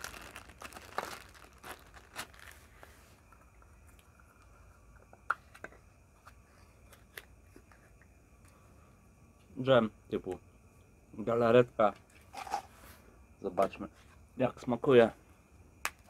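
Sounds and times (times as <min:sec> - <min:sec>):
wrapper crinkling and tearing: 0:00.0 - 0:02.7.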